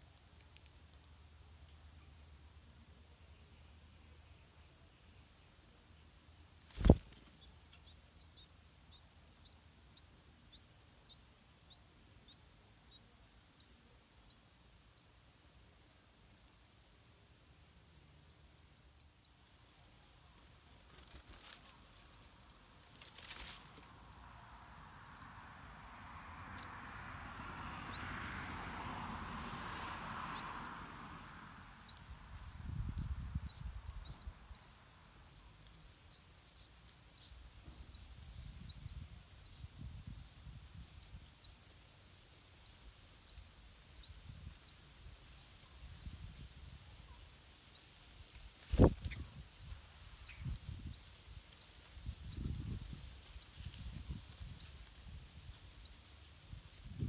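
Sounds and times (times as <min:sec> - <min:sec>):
nestlings begging chirps: 0:00.0 - 0:57.0
soft rushing noise: 0:20.4 - 0:41.3.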